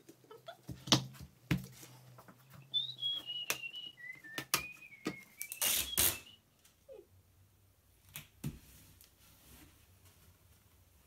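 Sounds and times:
person whistling a tune: 2.6s - 6.4s
rustling scrape: 8.6s - 10.6s.

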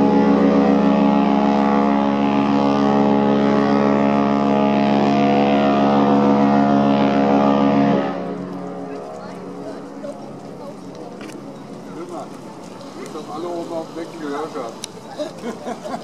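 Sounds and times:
ship horn long blast: 0.0s - 10.0s.

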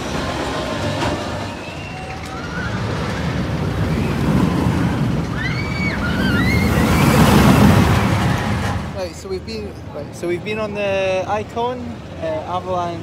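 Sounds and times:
high rising-and-falling cries: 0.0s - 8.9s
roller coaster rumbling on track: 0.0s - 13.0s.

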